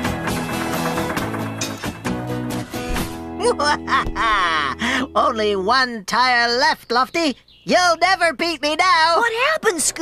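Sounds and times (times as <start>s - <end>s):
instrumental cartoon music: 0.0s - 5.2s.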